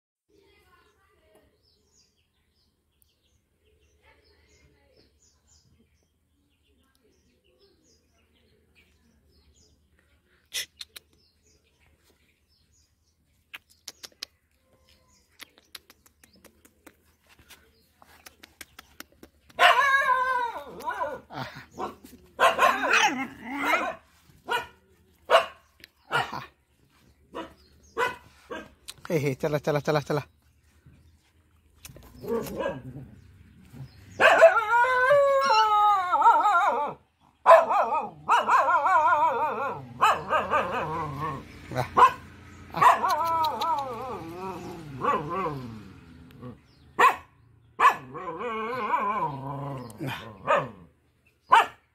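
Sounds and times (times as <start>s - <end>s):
dog yelping: 19.6s - 24.7s, 34.2s - 45.8s, 47.0s - 50.8s.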